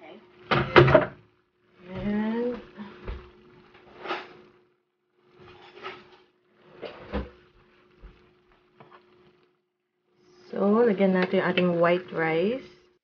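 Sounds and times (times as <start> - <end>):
faint steady hum: 0.0 - 13.0
rustling and scraping: 3.0 - 4.6, 5.2 - 9.6.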